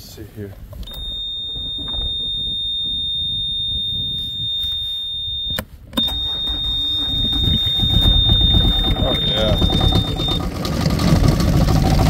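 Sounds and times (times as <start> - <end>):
low rumble: 0.6 - 12.0
high-pitched warning buzzer: 0.9 - 10.4.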